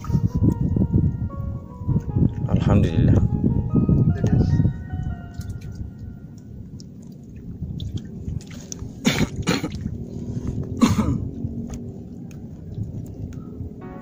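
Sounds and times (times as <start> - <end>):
steady low rumble: 0.0 - 14.0
man coughing: 9.0 - 9.8, 10.8 - 11.3.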